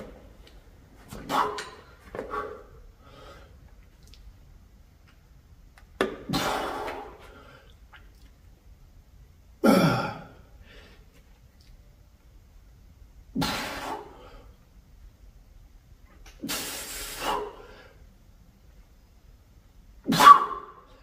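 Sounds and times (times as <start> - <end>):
man breathing with effort: 1.1 - 3.7.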